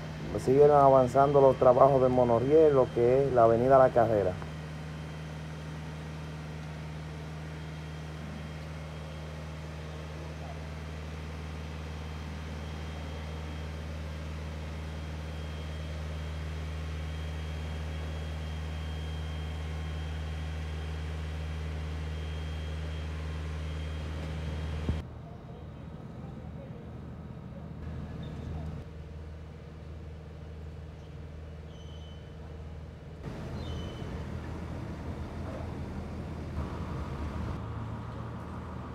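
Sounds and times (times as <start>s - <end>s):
faint high whine: 0.0s - 5.2s, 7.0s - 26.3s
low engine drone: 0.0s - 25.0s, 33.2s - 38.9s.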